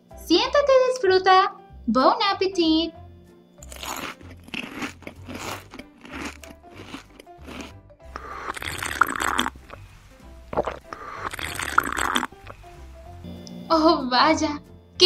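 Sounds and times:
light background music: 0.0s - 15.0s
crunching and chewing: 3.6s - 12.6s
slurping sips: 3.6s - 12.7s.

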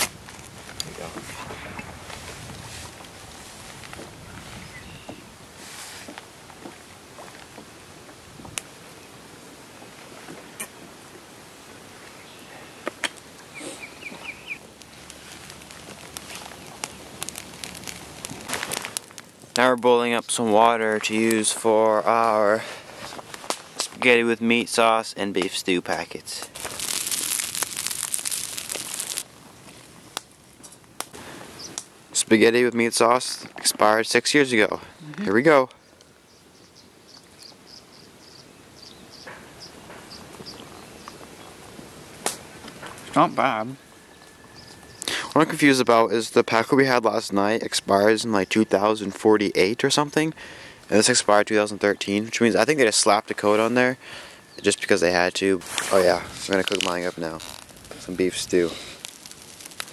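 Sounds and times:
soft rustle: 0.0s - 7.7s, 13.6s - 19.4s, 26.4s - 31.8s, 55.6s - 59.9s
fire crackling: 0.0s - 59.9s
bird chirping: 4.6s - 5.3s, 13.5s - 14.7s, 35.8s - 41.6s, 43.0s - 45.1s, 53.5s - 55.3s
wood popping and snapping: 12.8s - 19.8s, 25.4s - 31.9s, 55.6s - 59.9s.

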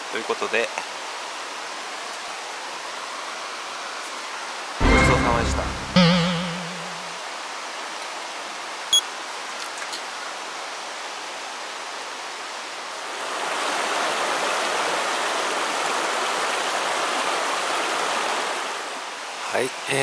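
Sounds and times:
brief high ping: 4.8s - 7.0s
river water rushing over rocks: 6.5s - 20.0s.

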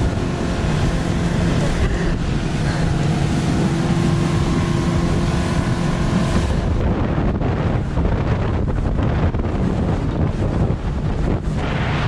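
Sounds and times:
outboard motor humming: 0.0s - 12.0s
water rushing past hull: 0.0s - 12.0s
wind noise on microphone: 0.0s - 12.0s.

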